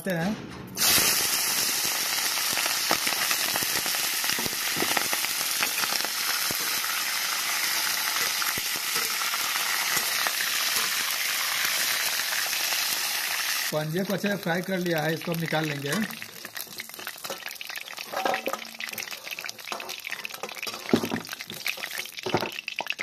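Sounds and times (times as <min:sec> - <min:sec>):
deep-frying sizzle with pops: 0:00.8 - 0:23.0.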